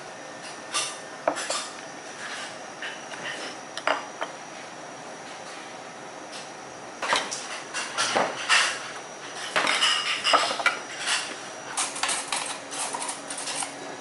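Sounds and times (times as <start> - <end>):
dishes and cutlery clattering: 9.4 - 14.0.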